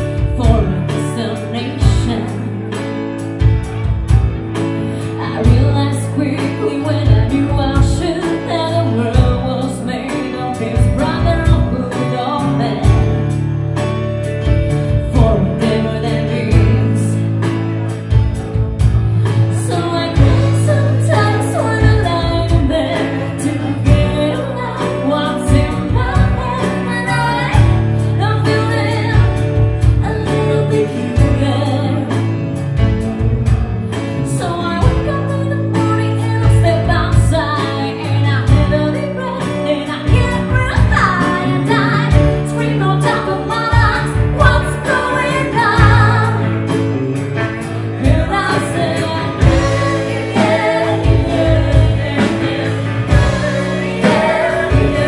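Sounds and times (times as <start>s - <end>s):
woman singing lead: 0.0s - 3.2s, 4.8s - 13.3s, 14.4s - 18.2s, 18.8s - 55.0s
live rock band playing: 0.0s - 55.0s
steady drum beat: 43.7s - 55.0s.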